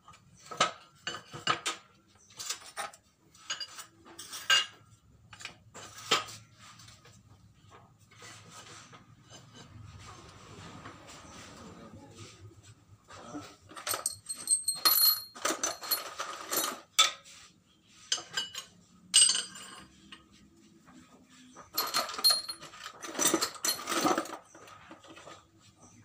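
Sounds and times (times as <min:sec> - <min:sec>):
metal bars clinking and scraping: 0:00.4 - 0:07.2, 0:13.2 - 0:17.4, 0:18.0 - 0:20.4, 0:21.5 - 0:25.4.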